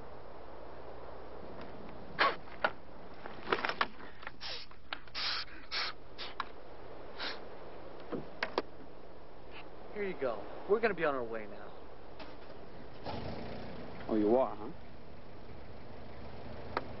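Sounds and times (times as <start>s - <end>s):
steady low hum: 0.0s - 17.0s
breathy puffs and draws: 3.9s - 6.4s, 7.2s - 7.4s.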